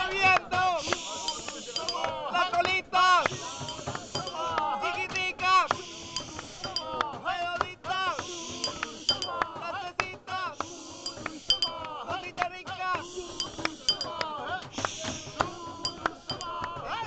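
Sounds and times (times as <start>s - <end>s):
handpan notes and taps: 1.3s - 2.0s, 6.2s - 6.9s, 13.4s - 14.2s, 15.9s - 16.6s.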